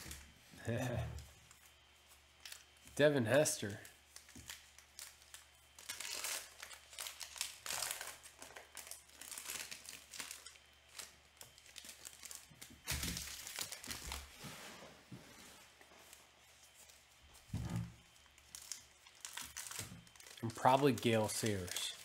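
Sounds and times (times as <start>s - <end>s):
card pack wrappers tearing: 3.6s - 14.3s, 18.0s - 22.0s.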